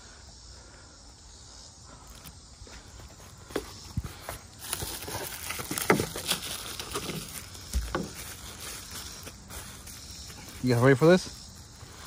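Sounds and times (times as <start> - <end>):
bubble wrap and cardboard crinkling: 4.2 - 10.6.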